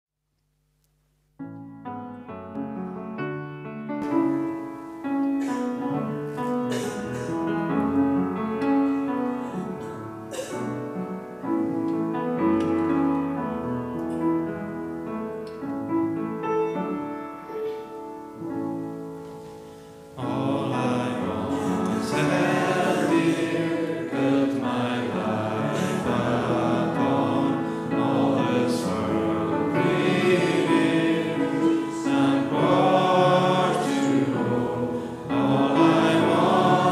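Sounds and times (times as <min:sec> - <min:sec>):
piano playing: 0:01.4 - 0:36.9
choir singing: 0:20.2 - 0:36.9.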